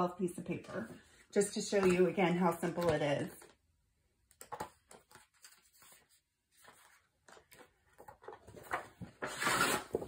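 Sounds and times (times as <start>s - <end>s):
paper rustling and tapping: 1.7s - 3.6s, 4.3s - 9.3s.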